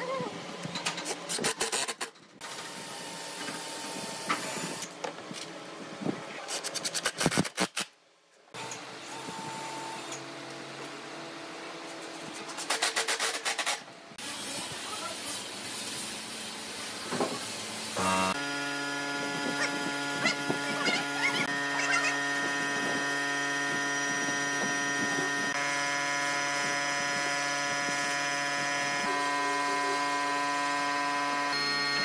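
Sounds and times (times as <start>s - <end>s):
cordless drill running: 18.0s - 32.0s.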